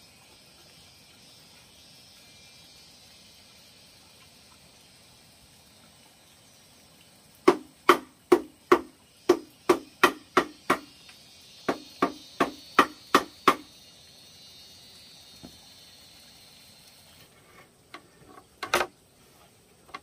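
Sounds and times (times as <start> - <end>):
knocking on hollow bamboo: 7.4 - 11.0, 11.6 - 13.7.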